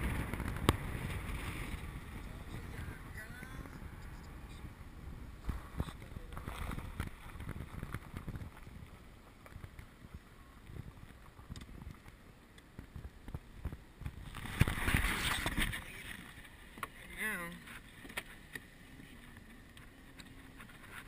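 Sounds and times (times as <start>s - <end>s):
wind buffeting microphone: 0.0s - 16.5s.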